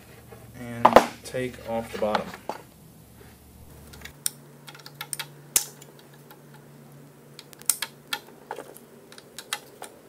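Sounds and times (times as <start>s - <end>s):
hand tool metallic clicks: 4.2s - 6.0s.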